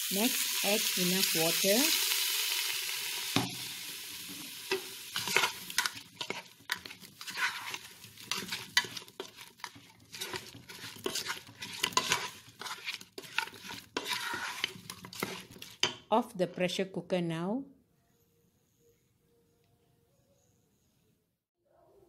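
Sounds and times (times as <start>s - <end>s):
water sizzling in hot oil: 0.0s - 15.9s
spatula scraping in pot: 4.2s - 16.0s.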